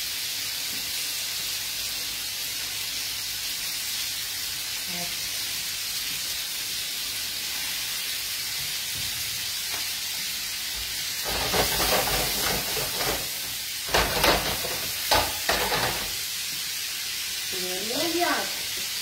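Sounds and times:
food sizzling in pans: 0.0 - 19.0.

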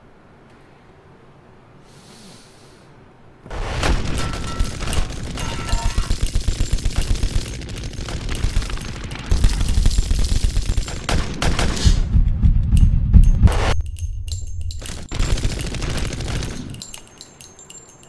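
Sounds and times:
automatic gunfire bursts: 3.6 - 11.8, 14.9 - 16.9.

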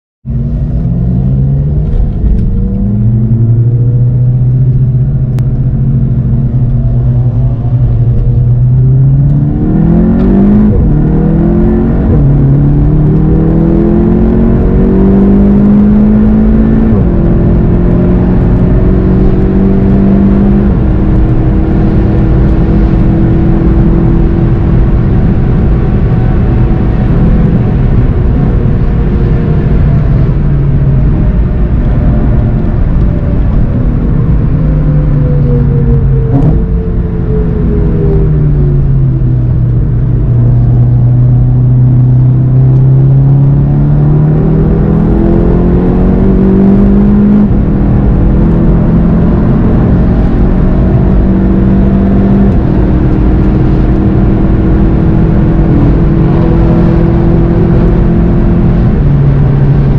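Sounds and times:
car engine accelerating hard: 0.2 - 59.9.

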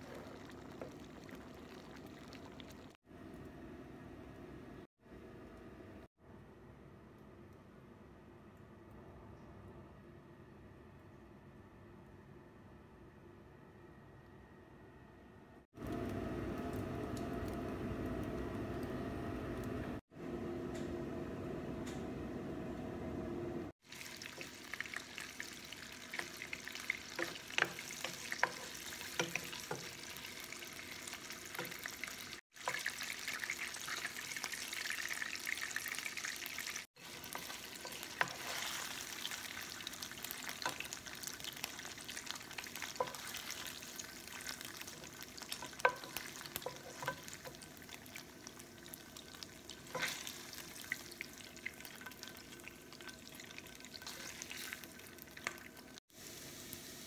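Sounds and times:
meat sizzling in hot oil: 0.0 - 3.0, 23.8 - 57.0
wooden spatula stirring in pan: 24.0 - 34.2, 37.0 - 55.7.

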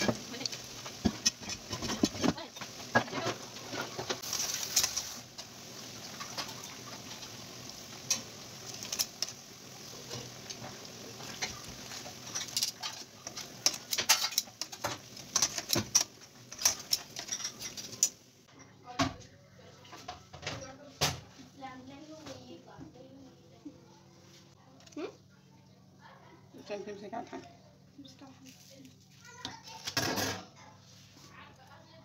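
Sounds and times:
food deep-frying in oil: 0.0 - 18.5.

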